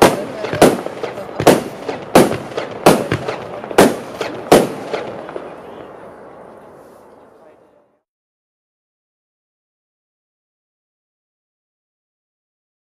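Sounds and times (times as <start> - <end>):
small firework pops: 0.0 - 5.5
firework bangs: 0.0 - 7.2.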